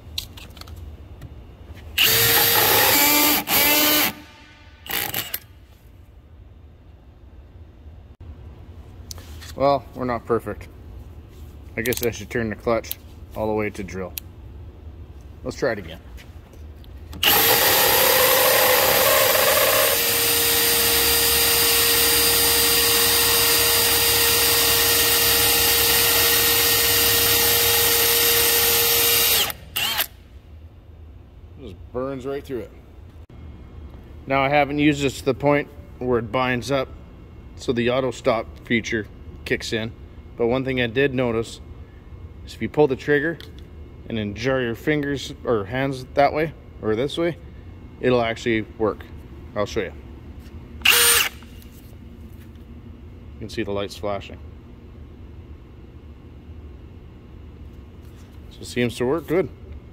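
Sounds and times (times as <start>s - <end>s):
drill with hole saw cutting wood: 2.0s - 5.4s, 17.2s - 30.1s, 50.8s - 51.4s.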